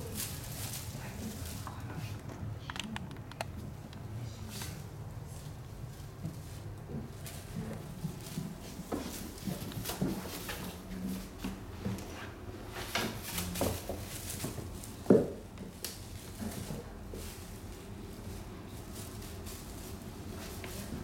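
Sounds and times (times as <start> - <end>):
plastic toy rustling: 0.0 - 3.7, 16.0 - 21.0.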